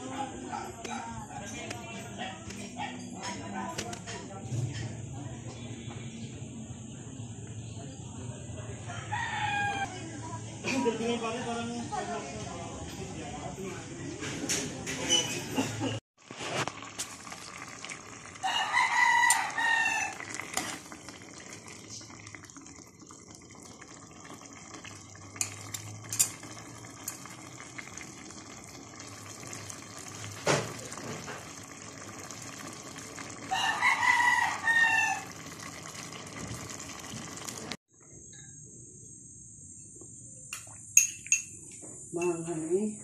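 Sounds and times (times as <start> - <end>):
rooster crowing: 8.8 - 10.1, 18.4 - 20.3, 33.4 - 35.4
pot boiling hiss: 15.1 - 38.1.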